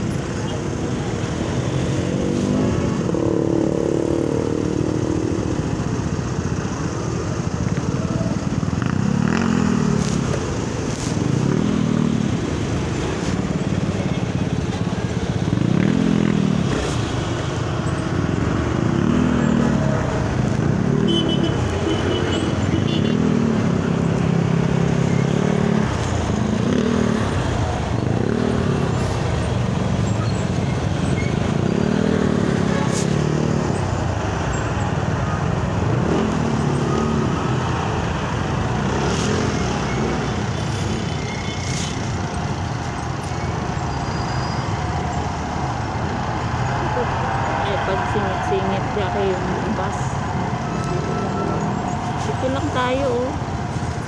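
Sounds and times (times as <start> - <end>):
traffic noise of cars and bus: 0.0 - 54.0
motorcycle engine revving: 8.4 - 13.1, 18.3 - 33.9.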